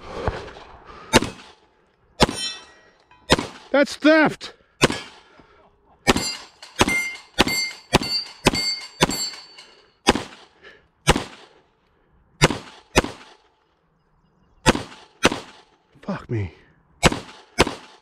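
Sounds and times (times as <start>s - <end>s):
pistol shots: 1.1s - 1.6s, 2.2s - 2.6s, 3.3s - 3.7s, 4.8s - 5.3s, 6.0s - 9.4s, 10.0s - 11.6s, 12.4s - 13.5s, 14.6s - 15.7s, 17.0s - 18.0s
steel targets ringing: 2.2s - 3.3s, 6.1s - 10.0s.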